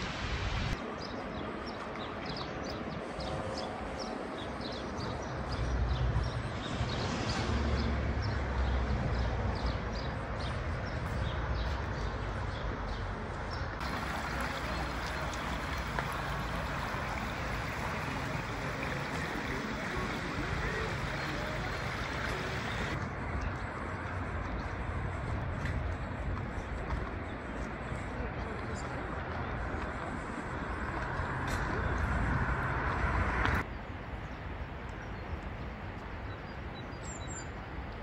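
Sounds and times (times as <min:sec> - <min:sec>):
wind rumble on microphone: 0:13.4 - 0:38.0
water falling: 0:13.8 - 0:23.0.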